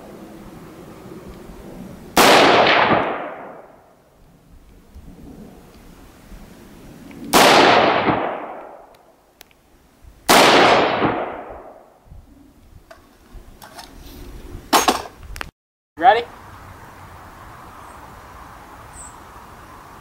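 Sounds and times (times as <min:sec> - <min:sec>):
rifle shots with echo: 0:02.2 - 0:03.8, 0:07.3 - 0:08.9, 0:10.3 - 0:11.9.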